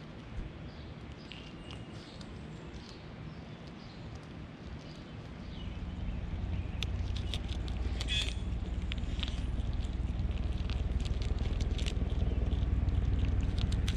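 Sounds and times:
animals chewing vegetables: 0:00.0 - 0:13.9
low rumble: 0:05.3 - 0:13.9.

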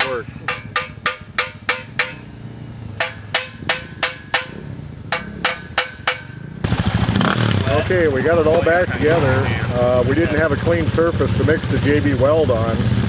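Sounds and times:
hammer blows on metal handlebar: 0:00.0 - 0:02.4, 0:03.0 - 0:06.5.

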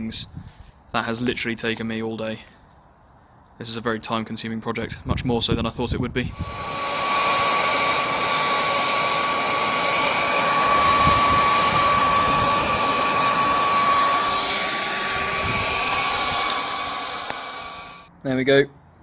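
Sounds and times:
air blower running: 0:06.3 - 0:18.1.

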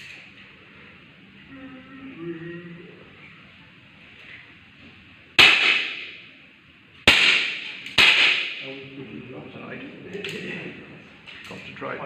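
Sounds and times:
air pistol shots with echo: 0:05.4 - 0:06.3, 0:07.1 - 0:08.6.

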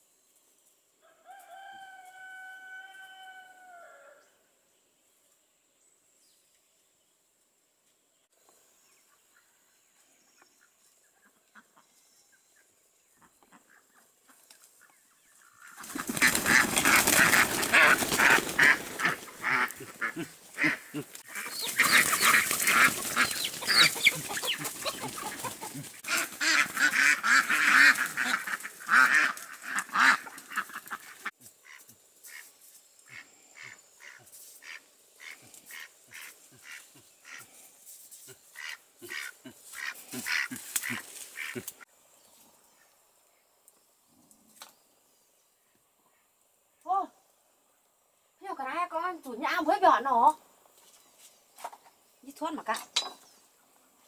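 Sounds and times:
ducks quacking: 0:15.6 - 0:32.5, 0:33.1 - 0:37.6, 0:38.5 - 0:41.8
wings flapping: 0:15.7 - 0:31.3.

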